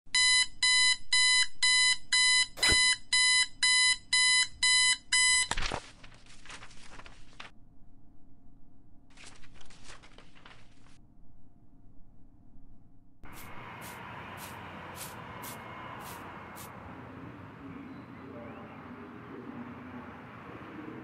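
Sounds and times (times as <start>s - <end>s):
alarm clock beeping: 0.2s - 5.5s
loud thump: 2.6s - 2.9s.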